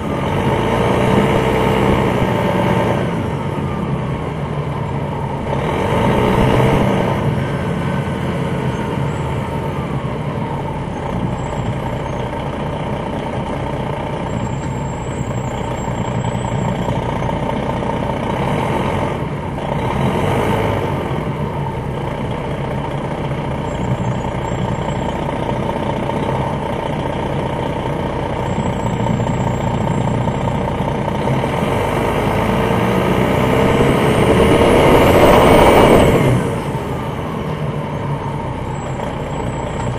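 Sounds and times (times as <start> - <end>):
bus diesel engine running: 0.0 - 39.9
faint high whistles: 14.2 - 16.8.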